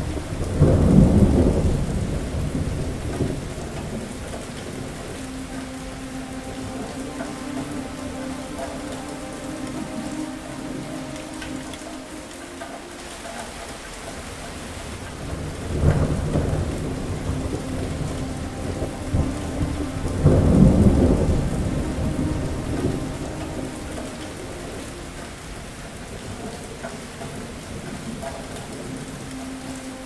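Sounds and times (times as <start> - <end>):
thunder clap and rumble: 0.0 - 5.6, 14.2 - 25.8
heavy rain: 0.0 - 30.0.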